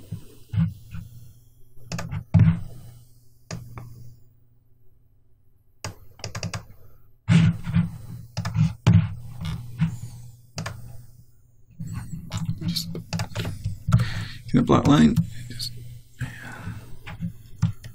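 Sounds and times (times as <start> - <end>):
keyboard and mouse clicking: 1.9 - 2.2, 5.8 - 6.7.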